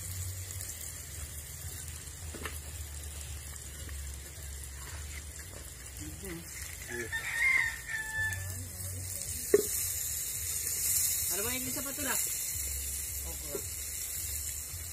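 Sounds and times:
food sizzling in a pot: 0:00.0 - 0:14.9.

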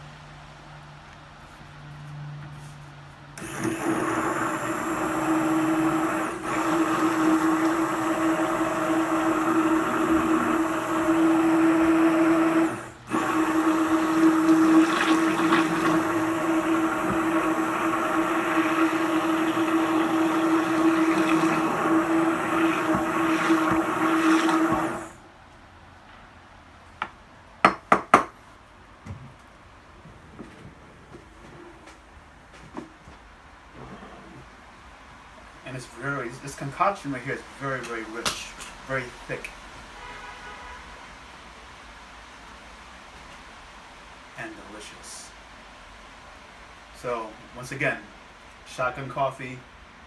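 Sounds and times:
immersion blender whirring: 0:03.4 - 0:25.2.

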